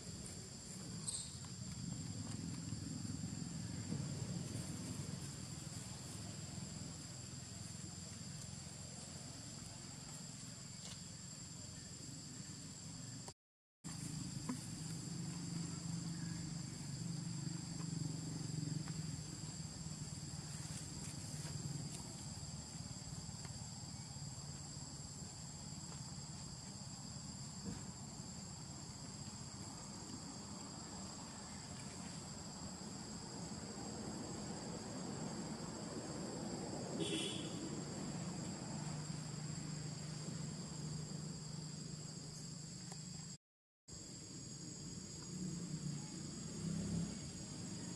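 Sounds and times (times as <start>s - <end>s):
short sharp insect call: 0.0s - 3.9s, 36.9s - 43.4s
insect chorus: 0.0s - 47.9s.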